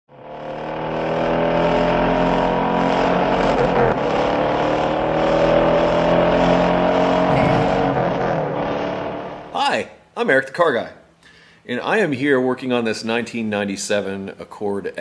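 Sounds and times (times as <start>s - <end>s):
car engine running hard: 0.1s - 9.5s.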